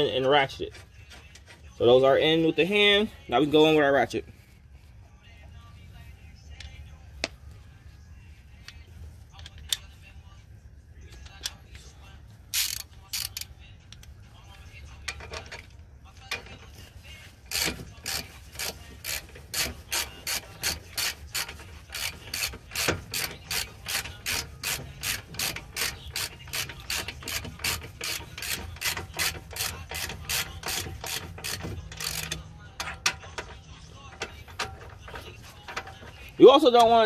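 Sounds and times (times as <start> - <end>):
socket ratchet clicking: 12.5 - 13.5, 17.5 - 33.6.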